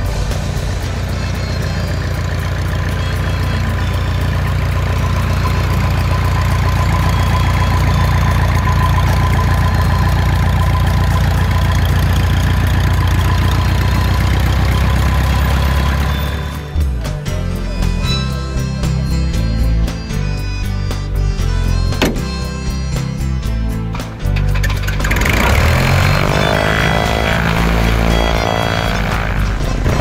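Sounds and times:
thin steady whine: 0:00.0 - 0:16.8
light aircraft engine idling: 0:00.0 - 0:30.0.

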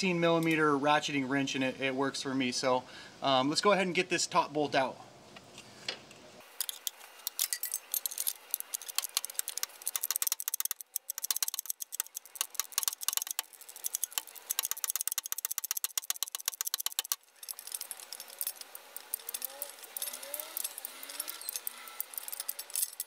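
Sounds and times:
ratchet wrench clicking: 0:06.6 - 0:23.0.

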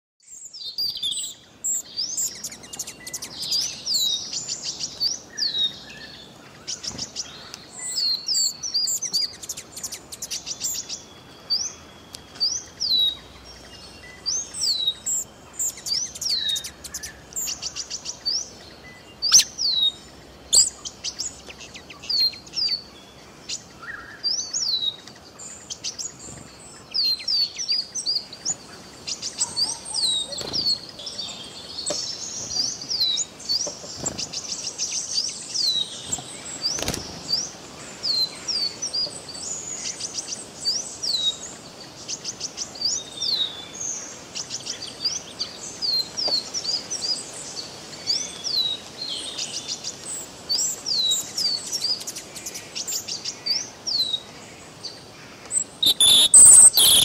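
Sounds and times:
hummingbird chirps: 0:00.3 - 0:22.9, 0:55.5 - 0:57.0.

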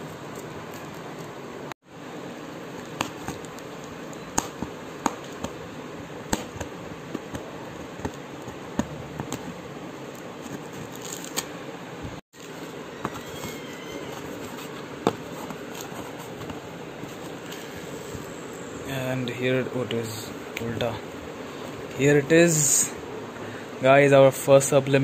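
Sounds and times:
steady background hiss: 0:00.0 - 0:25.0
cardboard and tape ripping: 0:10.4 - 0:11.5.

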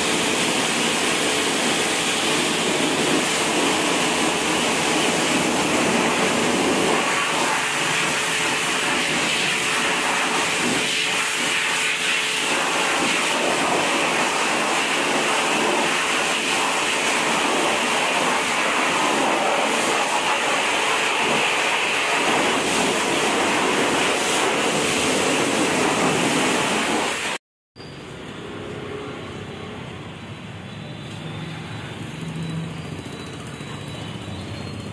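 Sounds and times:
pressure washer spray hissing: 0:00.0 - 0:27.4.

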